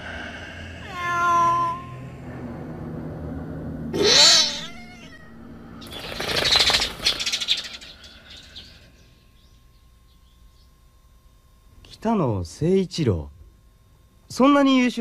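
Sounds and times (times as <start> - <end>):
cat yowling: 0.8 - 2.0, 4.0 - 5.4
flock of birds wings fluttering: 5.8 - 8.8.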